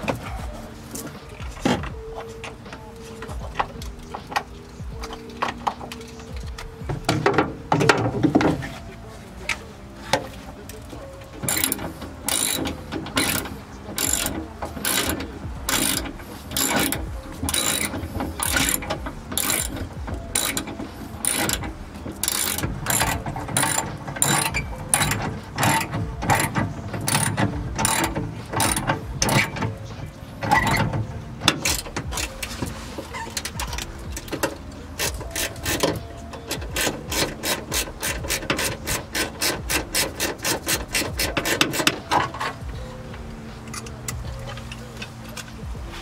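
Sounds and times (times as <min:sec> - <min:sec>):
ratchet wrench clicking: 0:11.4 - 0:29.7, 0:33.4 - 0:42.3.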